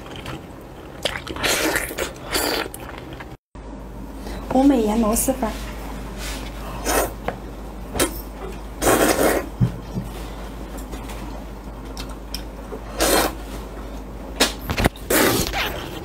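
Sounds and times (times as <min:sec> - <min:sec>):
noodles being slurped: 0:00.1 - 0:03.4, 0:12.9 - 0:13.4.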